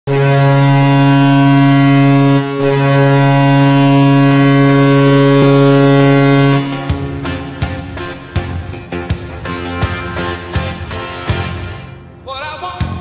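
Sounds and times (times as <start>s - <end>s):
loud low goal horn: 0.1s - 8.9s.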